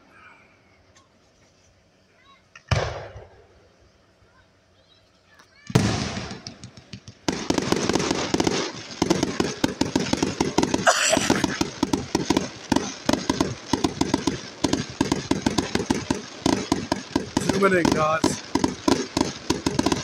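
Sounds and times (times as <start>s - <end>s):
fireworks bangs and crackles: 2.7s - 3.6s, 5.6s - 20.0s.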